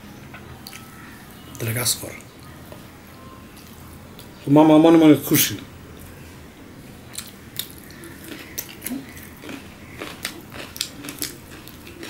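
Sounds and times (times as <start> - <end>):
man chewing: 7.1 - 12.0.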